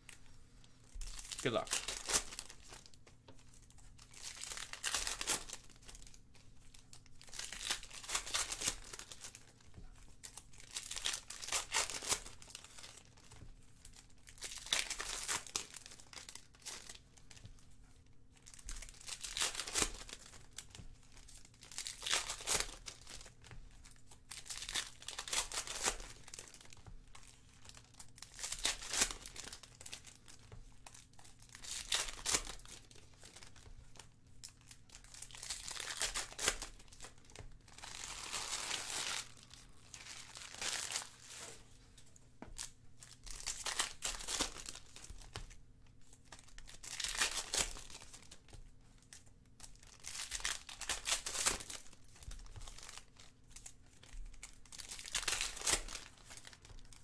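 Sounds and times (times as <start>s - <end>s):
plastic wrappers crinkling and tearing: 0.1s - 57.0s.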